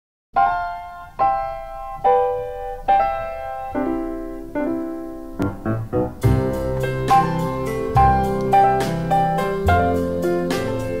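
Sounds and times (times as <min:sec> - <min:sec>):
ringing chords music: 0:00.4 - 0:11.0.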